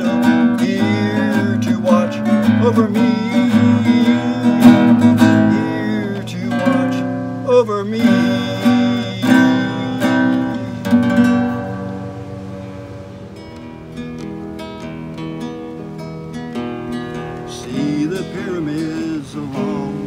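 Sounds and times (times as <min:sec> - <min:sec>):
man singing wavering note: 0:00.0 - 0:11.6
classical guitar strummed and picked: 0:00.0 - 0:20.0.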